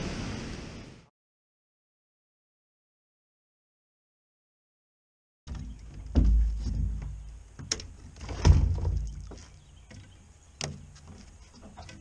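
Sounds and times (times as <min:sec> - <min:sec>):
knocks and thumps on boat deck: 0:05.5 - 0:12.0.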